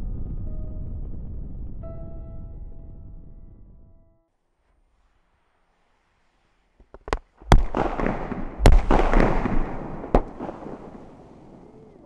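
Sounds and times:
crackling: 0:04.9 - 0:12.0
small pops: 0:06.8 - 0:09.1
loud explosive blasts: 0:07.4 - 0:11.8.

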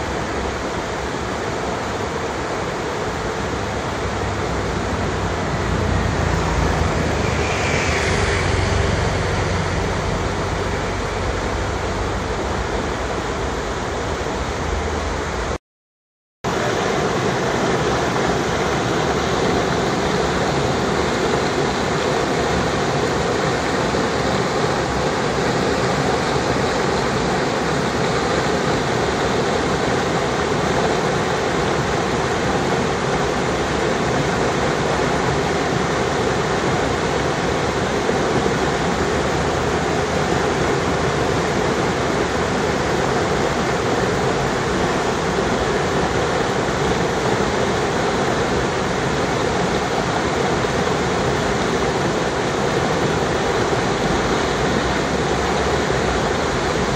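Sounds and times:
stream rushing over boulders: 0:00.0 - 0:15.6, 0:16.4 - 0:56.9.

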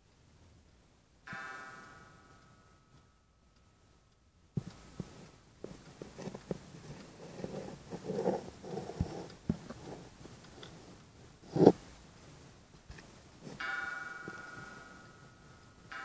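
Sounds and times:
rubbing and handling noises: 0:04.6 - 0:14.8
pendulum wall clock ticking: 0:13.5 - 0:16.0.

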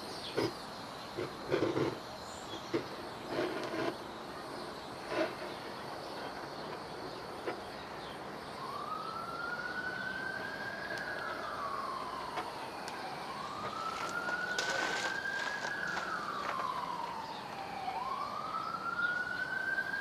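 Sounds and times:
steady hiss: 0:00.0 - 0:18.0
siren wailing: 0:08.4 - 0:20.0.

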